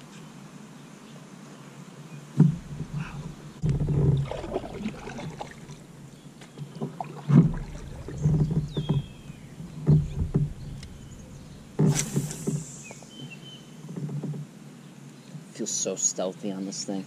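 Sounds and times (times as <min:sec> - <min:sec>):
paddle knocking against kayak: 0:02.4 - 0:13.1
paddle splashing in water: 0:02.4 - 0:13.3.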